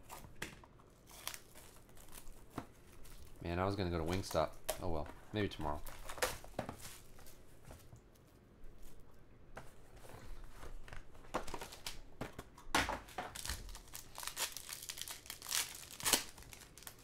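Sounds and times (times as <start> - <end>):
foil crinkling: 1.0 - 7.4, 13.3 - 17.0.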